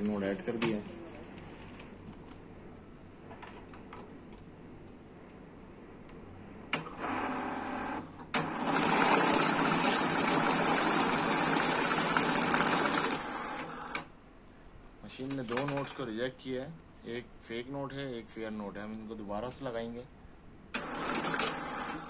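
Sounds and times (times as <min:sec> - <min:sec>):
cash counting machine running: 0:07.0 - 0:14.1, 0:20.8 - 0:22.0.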